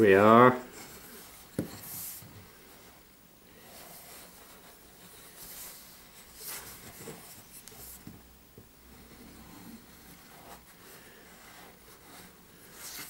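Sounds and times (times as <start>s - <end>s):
hands rubbing on wood: 3.6s - 8.2s.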